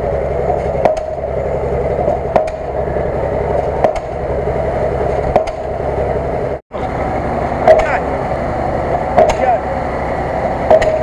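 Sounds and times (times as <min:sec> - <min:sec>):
engine running hard: 0:00.0 - 0:11.0
sharp knocks: 0:00.5 - 0:01.2, 0:02.0 - 0:02.8, 0:03.6 - 0:04.2, 0:05.1 - 0:05.8, 0:07.6 - 0:08.0, 0:09.1 - 0:09.6, 0:10.6 - 0:11.0.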